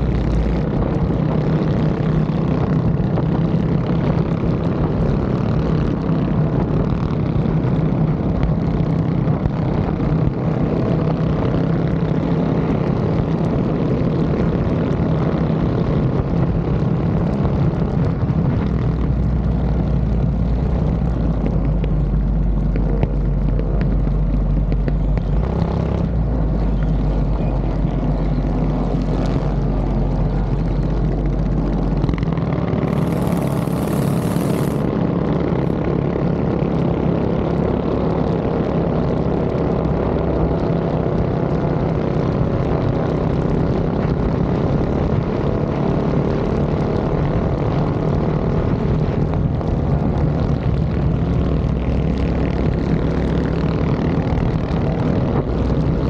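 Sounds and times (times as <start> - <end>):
minibike engine running: 0.0 - 46.3
wind rushing: 28.4 - 35.8.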